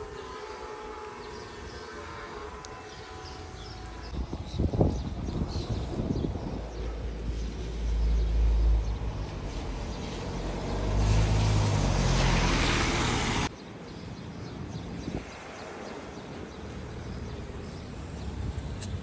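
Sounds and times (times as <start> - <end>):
car driving past: 7.8 - 13.5.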